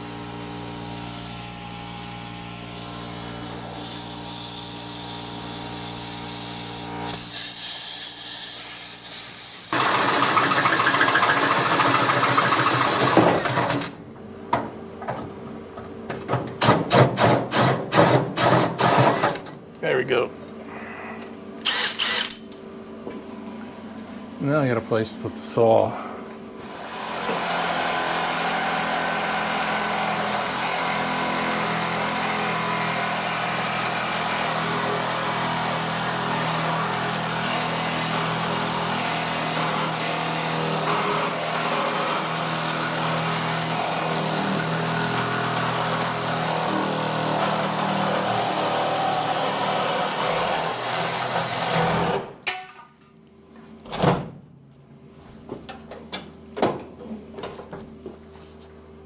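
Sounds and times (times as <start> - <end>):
power saw cutting steel: 0.0 - 14.0, 26.7 - 52.3.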